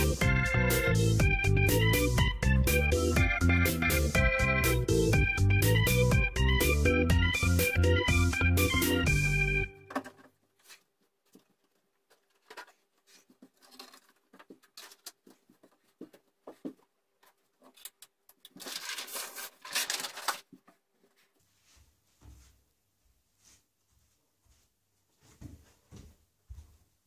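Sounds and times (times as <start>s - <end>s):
background music: 0.0s - 10.0s
packaging rustling: 10.0s - 15.8s, 17.6s - 20.8s.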